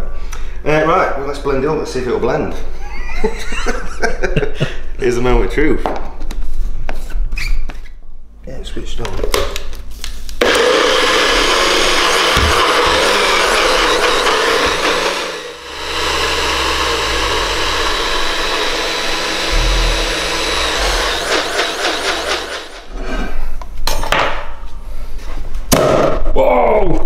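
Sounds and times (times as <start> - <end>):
blender grinding batter: 10.4 - 22.9.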